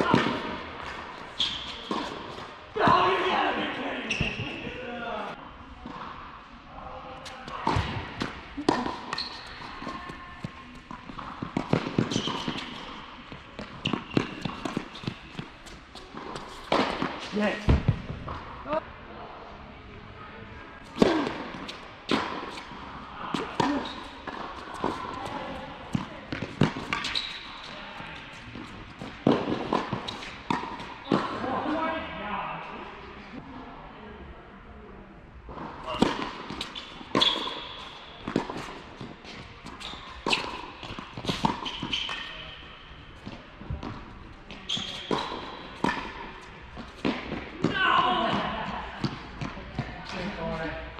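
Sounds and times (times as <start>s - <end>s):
tennis ball bouncing: 0.0s - 3.0s, 7.4s - 18.5s, 20.9s - 31.4s, 35.6s - 42.6s, 43.2s - 47.7s
tennis racket hitting ball: 0.0s - 3.2s, 7.4s - 18.0s, 20.9s - 31.4s, 35.8s - 42.6s, 43.2s - 49.6s.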